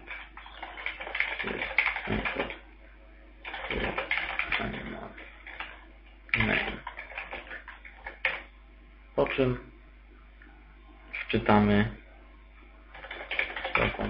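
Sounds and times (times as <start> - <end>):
computer keyboard typing: 0.0 - 2.6, 3.4 - 8.5, 12.9 - 14.0.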